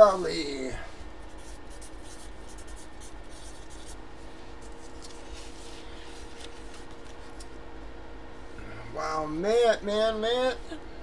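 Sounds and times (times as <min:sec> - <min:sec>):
pen scratching on paper: 0:01.3 - 0:04.0.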